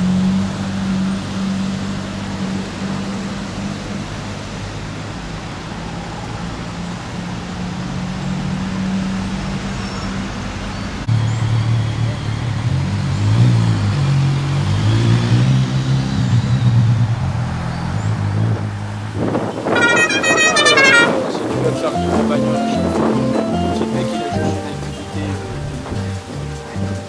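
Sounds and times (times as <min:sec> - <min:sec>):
car engine humming: 0:18.6 - 0:27.0.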